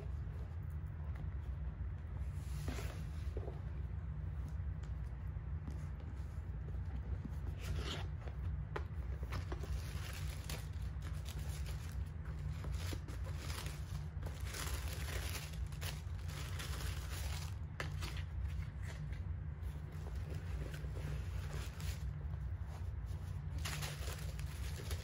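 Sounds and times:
steady low hum: 0.0s - 25.0s
tissue paper rustling: 5.8s - 25.0s.

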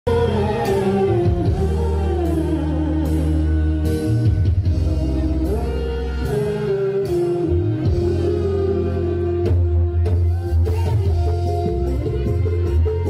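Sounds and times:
deep bass notes: 0.0s - 13.0s
man and woman singing: 0.1s - 9.7s.

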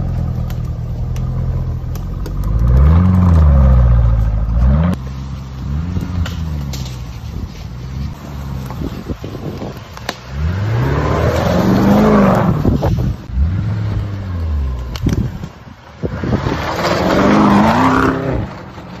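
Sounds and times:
car engine revving: 0.0s - 7.1s, 10.1s - 15.2s, 16.0s - 18.8s.

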